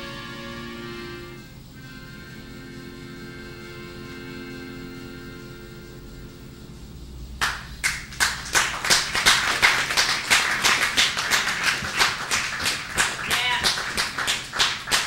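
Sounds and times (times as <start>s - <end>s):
audience clapping: 7.4s - 15.0s.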